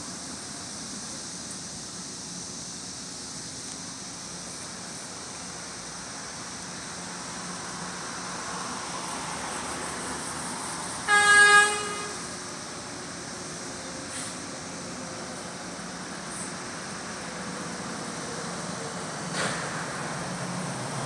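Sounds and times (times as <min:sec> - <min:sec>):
road traffic: 0:00.0 - 0:21.0
light rail horn blast: 0:11.0 - 0:12.8.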